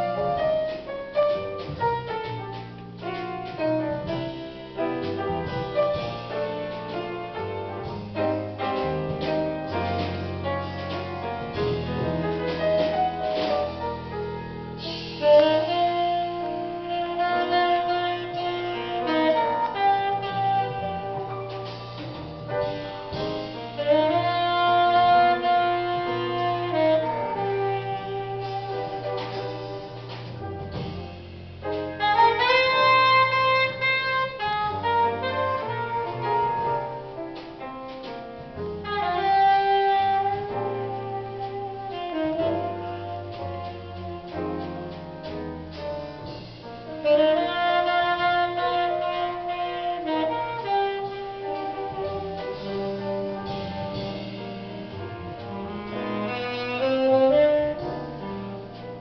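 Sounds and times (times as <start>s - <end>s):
double bass: 0.0s - 59.0s
drums: 0.0s - 59.0s
piano: 0.0s - 59.0s
saxophone melody: 14.7s - 37.2s, 38.7s - 45.8s, 46.9s - 59.0s.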